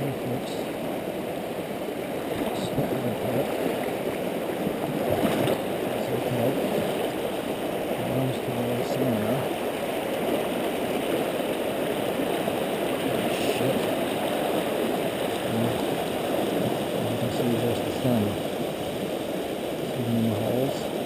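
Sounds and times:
river rushing over rocks: 0.0s - 21.0s.

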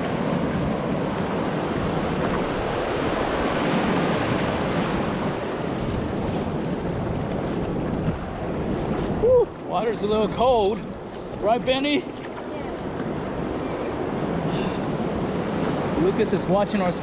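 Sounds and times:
wind noise on microphone: 0.0s - 11.7s
ocean surf washing: 0.0s - 17.0s.

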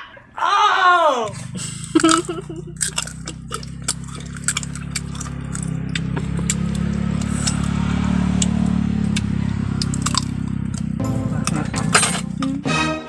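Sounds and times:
crunchy chewing: 1.3s - 11.6s
low engine hum: 1.3s - 12.7s.

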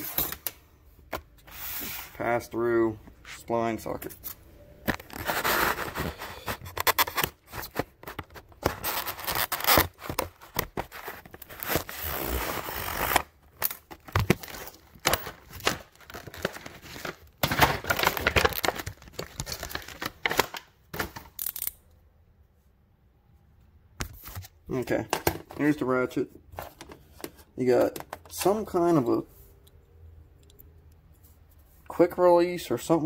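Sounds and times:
plastic packaging tearing: 5.0s - 20.6s.

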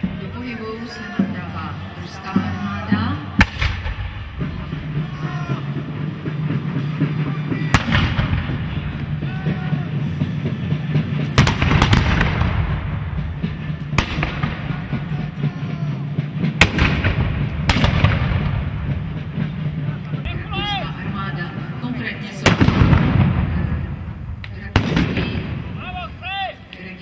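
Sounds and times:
musket shots: 16.6s - 18.6s.

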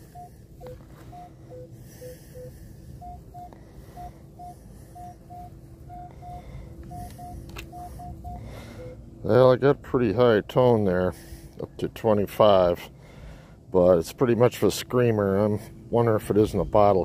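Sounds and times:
metal detector beeping: 0.0s - 9.0s.

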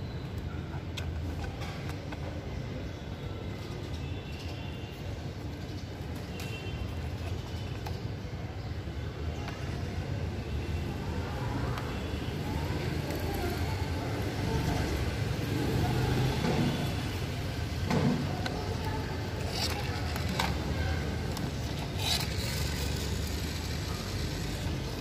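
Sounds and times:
plastic toy truck clicks and scrapes: 0.3s - 2.4s, 17.8s - 25.0s.

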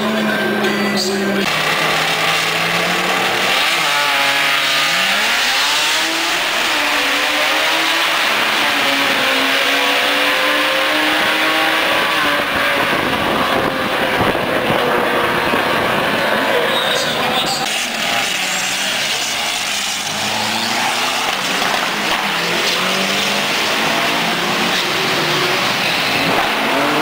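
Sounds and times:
drag-race cars accelerating: 0.0s - 27.0s.

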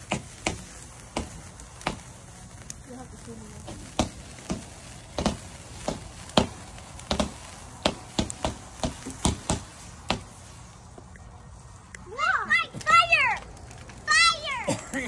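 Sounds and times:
firework pops with short ring: 0.0s - 2.2s, 3.6s - 10.4s.

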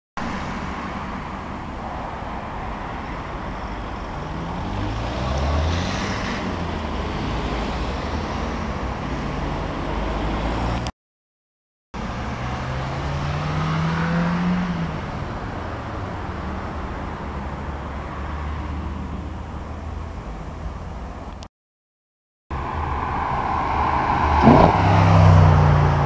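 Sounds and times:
cars passing: 0.2s - 10.9s, 12.0s - 21.4s, 22.5s - 26.0s
engines accelerating: 12.0s - 15.2s, 22.5s - 26.0s.

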